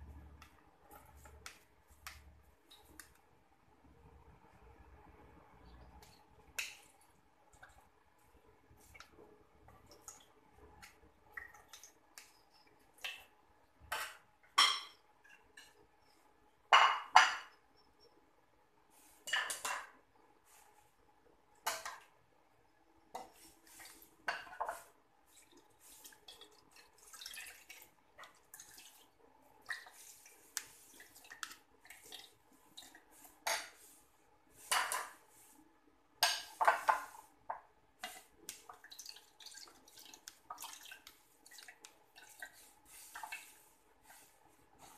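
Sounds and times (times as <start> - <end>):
milk dripping and trickling: 6.0 - 13.4, 25.2 - 33.1, 38.3 - 43.6.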